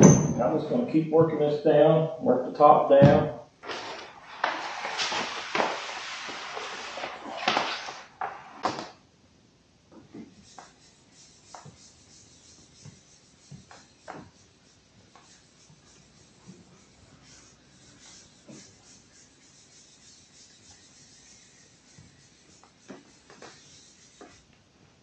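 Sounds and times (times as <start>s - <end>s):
vinyl wrap rustling: 3.6s - 8.9s
hand rubs and taps: 9.9s - 10.8s, 11.4s - 11.9s, 12.5s - 14.4s, 21.9s - 24.4s.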